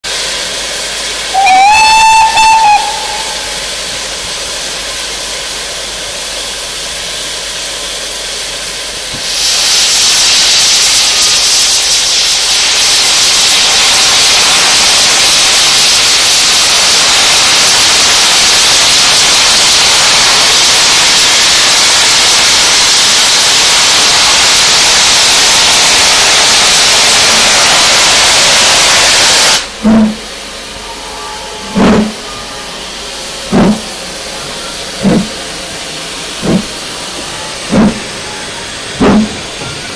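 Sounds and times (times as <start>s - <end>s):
steam hissing: 0.0s - 39.9s
steam blasting from drain cocks: 0.1s - 6.6s, 8.6s - 30.8s
steam locomotive whistle: 1.3s - 3.7s, 28.7s - 33.8s.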